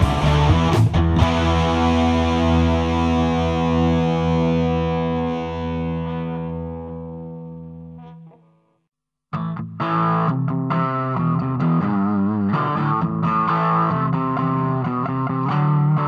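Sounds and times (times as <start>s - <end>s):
distorted electric guitar chord ringing: 0.0s - 8.8s.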